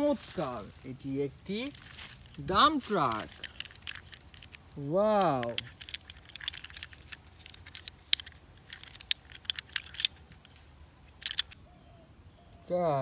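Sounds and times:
toy truck clicking and tapping: 2.3 - 11.6.

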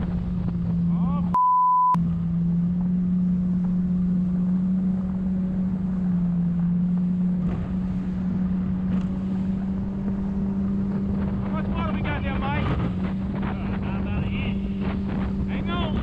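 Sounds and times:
wind noise on microphone: 0.0 - 1.0, 8.9 - 16.0
boat engine droning: 0.0 - 16.0.

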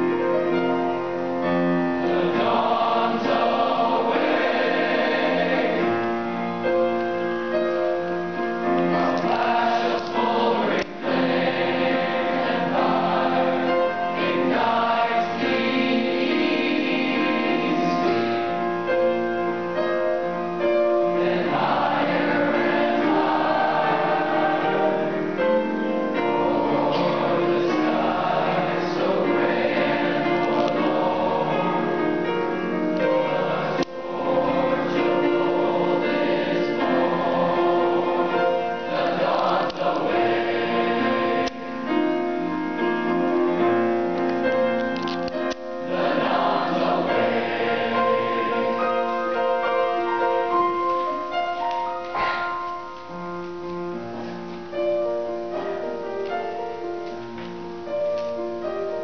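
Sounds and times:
choir singing: 0.0 - 52.6.

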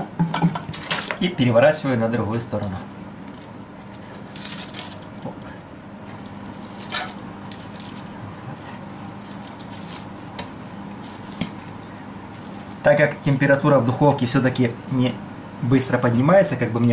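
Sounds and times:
low steady hum: 0.0 - 16.9
foil crinkling: 3.3 - 5.3, 6.2 - 8.1, 9.0 - 11.7, 12.3 - 12.8
cutlery scraping a wire rack: 6.8 - 7.2.

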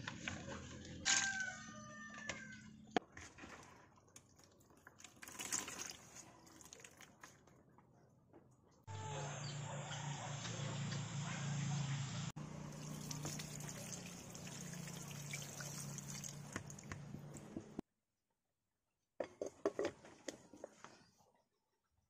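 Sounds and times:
tap water splashing over shells: 12.8 - 17.1.

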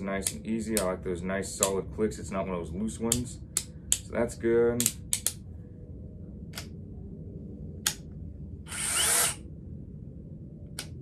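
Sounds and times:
drill motor spinning: 8.7 - 9.4.

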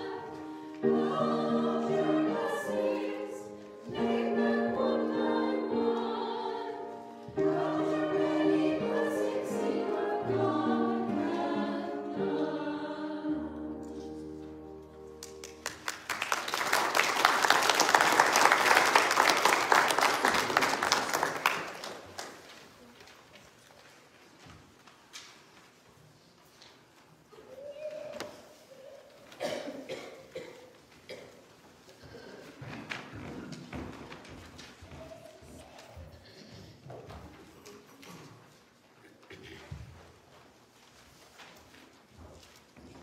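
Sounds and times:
women singing a hymn in harmony: 0.0 - 14.2
applause: 15.2 - 22.6.

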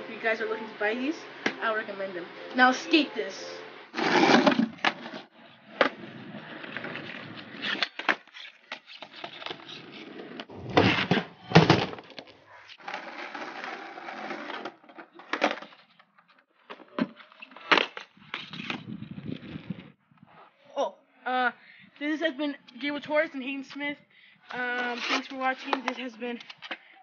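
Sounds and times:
skateboard wheels rolling on concrete: 0.2 - 20.3.

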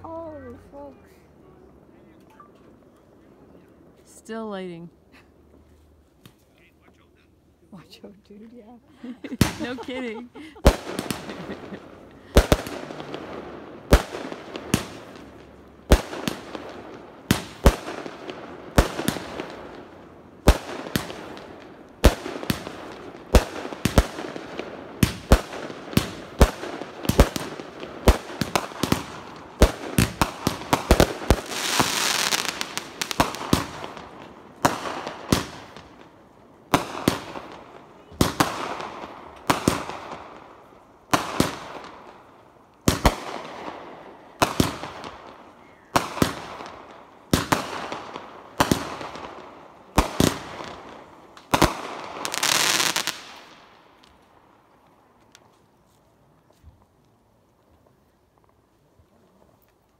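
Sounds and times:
dense fireworks hiss: 0.0 - 59.9
fireworks banging: 9.0 - 54.6.

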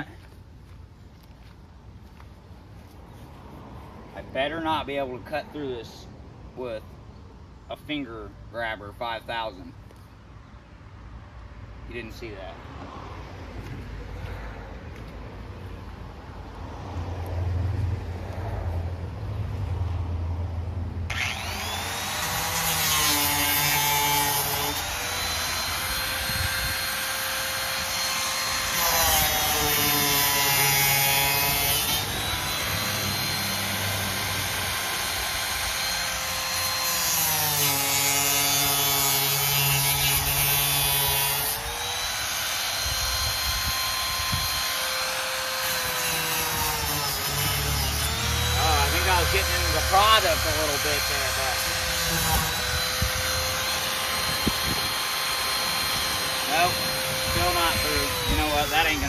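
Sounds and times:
power tool cutting cardboard: 21.1 - 59.0
power tool whining: 21.1 - 59.0.

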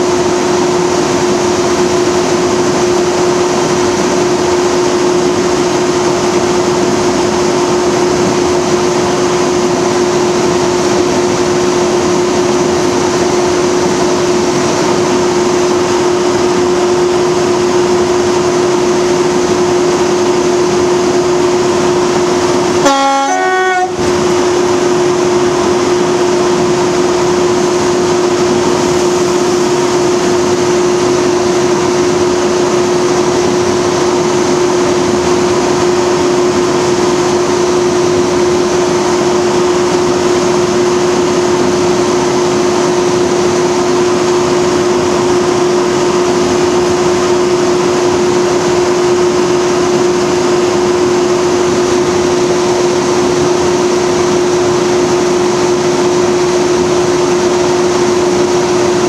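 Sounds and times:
diesel locomotive engine drone: 0.0 - 59.0
locomotive horn two-note blast: 22.8 - 24.2.

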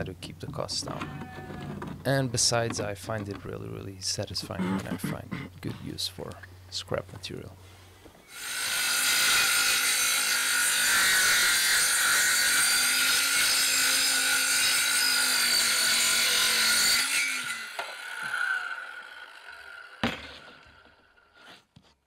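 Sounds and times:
power saw cutting wood: 8.3 - 21.6.

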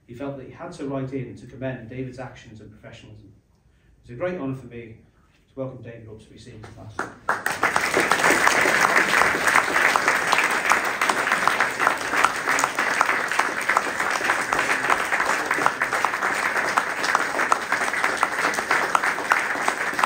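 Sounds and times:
audience applauding: 7.0 - 20.0.

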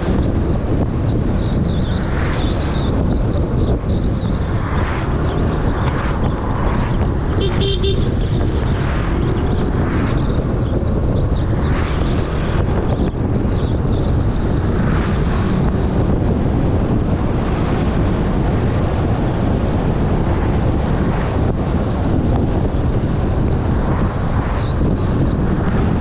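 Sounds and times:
vehicle rumble: 0.0 - 26.0
wind buffeting microphone: 0.0 - 26.0.

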